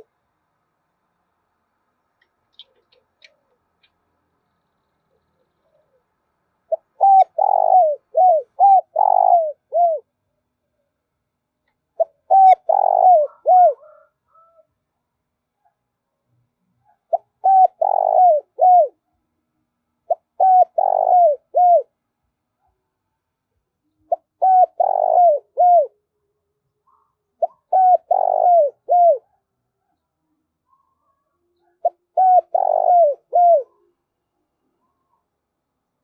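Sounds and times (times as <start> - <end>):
dove cooing: 5.1 - 10.1, 12.0 - 14.7, 16.9 - 19.0, 20.0 - 22.0, 23.9 - 26.0, 26.9 - 29.4, 30.7 - 34.0.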